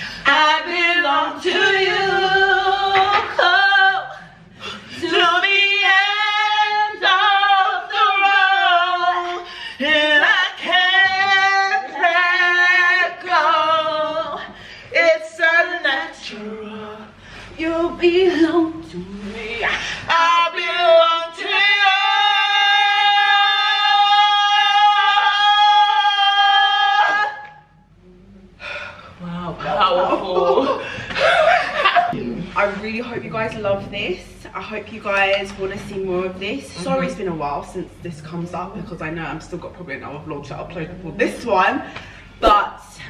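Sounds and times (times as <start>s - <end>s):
women singing unaccompanied: 0.1s - 27.7s.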